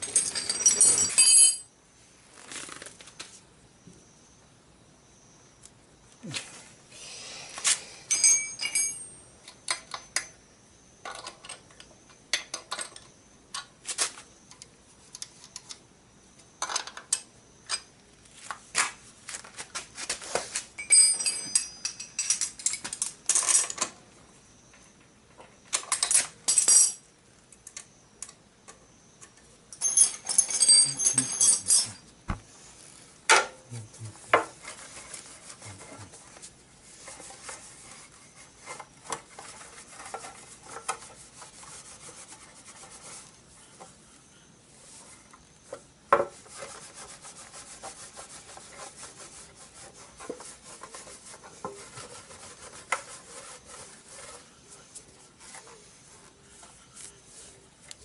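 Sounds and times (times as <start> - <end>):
metal tools clinking and clattering: 0.0 - 1.7, 8.1 - 9.2, 20.8 - 23.9, 25.8 - 27.0, 29.7 - 32.0
ringing metal: 8.1 - 9.3, 29.8 - 32.0.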